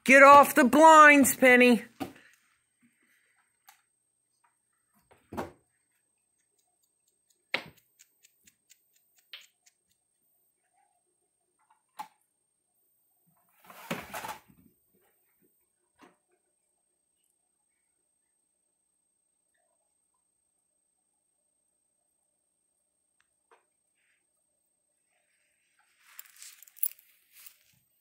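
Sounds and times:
rustling: 25.3 - 27.9.

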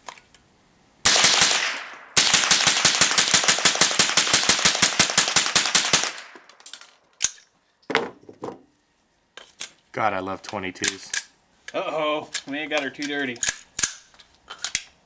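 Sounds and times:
rifle gunshots: 1.0 - 6.4.

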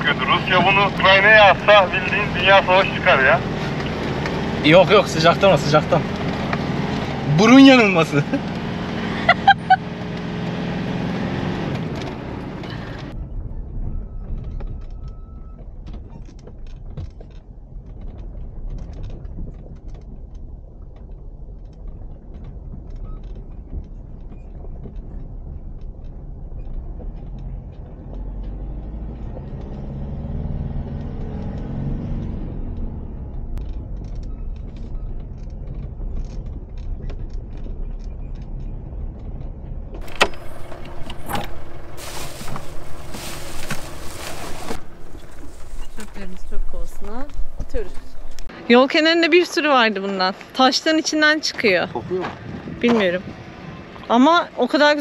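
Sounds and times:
engine and tyre rumble: 0.0 - 55.0
vehicle rattles and knocks: 0.0 - 55.0
plastic bags rustling: 40.0 - 48.4.

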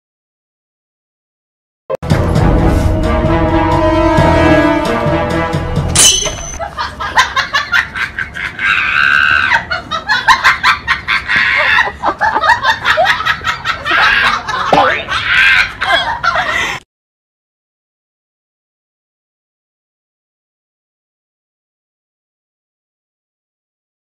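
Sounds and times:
laughter in pulsing bursts: 6.6 - 16.8.

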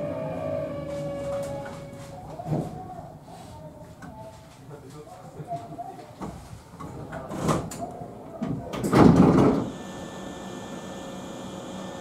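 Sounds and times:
sliding doors clattering: 8.8 - 9.8.

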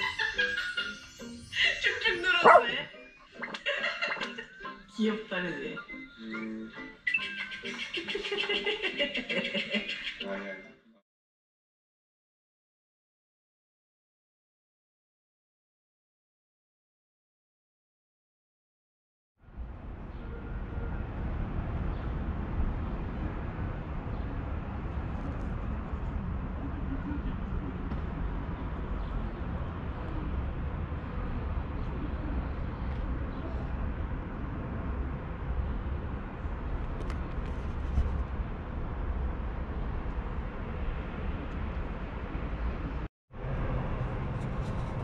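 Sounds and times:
city street noise: 0.0 - 11.0, 19.4 - 45.0
distant traffic rumble: 1.8 - 2.9, 19.4 - 45.0.

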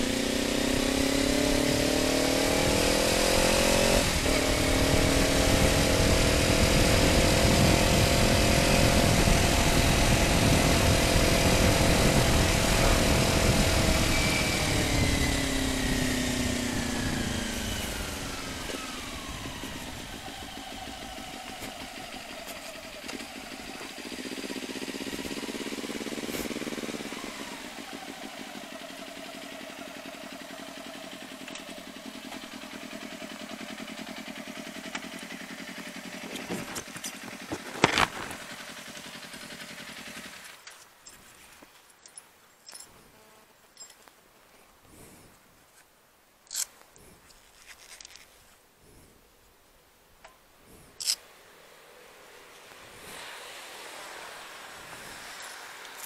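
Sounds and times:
motorcycle engine slowing and idling: 0.0 - 41.1, 50.2 - 56.0.

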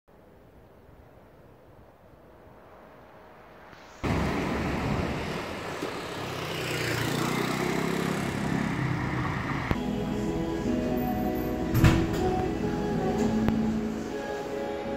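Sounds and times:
passing vehicles: 2.3 - 14.9
motor scooter engine hum: 4.0 - 14.4.

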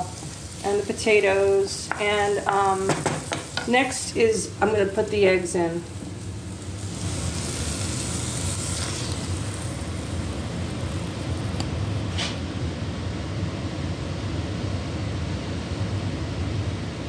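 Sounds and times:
eggs frying in a pan: 0.0 - 12.1
steady low hum: 0.0 - 17.0.

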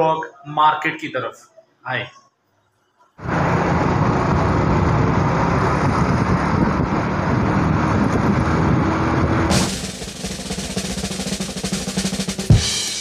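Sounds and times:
vehicle engine and road noise: 3.2 - 10.8
drum-kit music: 9.5 - 13.0.

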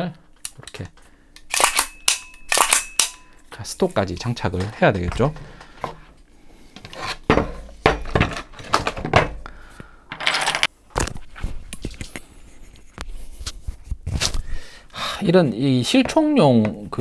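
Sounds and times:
gun parts clicking and knocking: 0.3 - 6.0.

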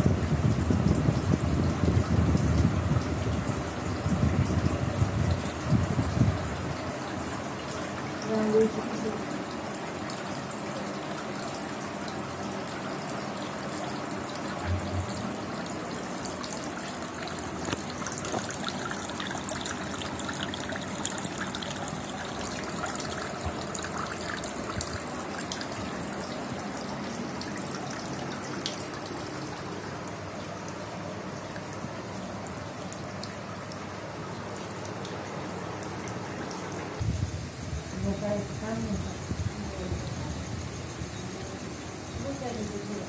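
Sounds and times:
water drips: 0.0 - 37.0
fountain water trickling: 0.0 - 43.0.

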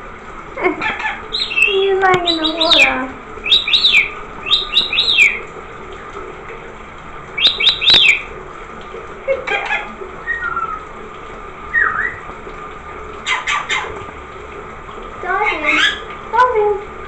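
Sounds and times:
running shower water: 0.0 - 17.0
parrot chirping: 0.8 - 5.4, 7.4 - 8.3, 9.5 - 10.8, 11.7 - 12.2, 13.2 - 13.9, 15.4 - 16.1
thin bird whistles: 10.3 - 10.8, 11.7 - 12.2.

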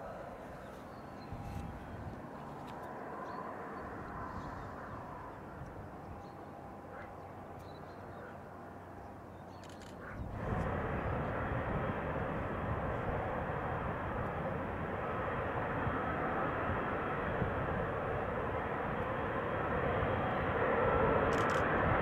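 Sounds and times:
jet engines taxiing: 0.0 - 22.0
jet engines running up: 8.6 - 22.0.

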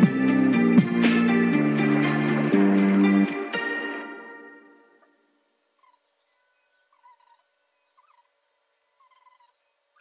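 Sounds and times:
background music notes ringing: 0.0 - 8.2.

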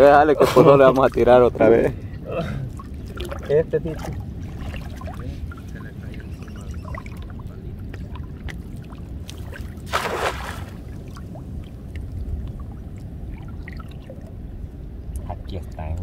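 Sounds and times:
steady low rumble: 0.0 - 16.0
net splashing onto water: 8.9 - 11.2.

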